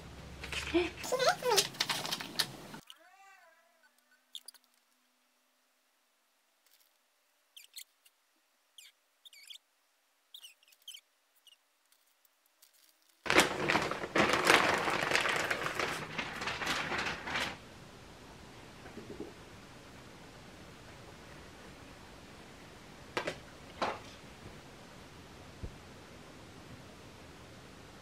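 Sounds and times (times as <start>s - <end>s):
plastic bag crinkling: 0.4s - 2.8s, 11.9s - 17.6s
faint bird chirps: 2.8s - 4.8s, 7.5s - 9.7s, 10.3s - 11.7s.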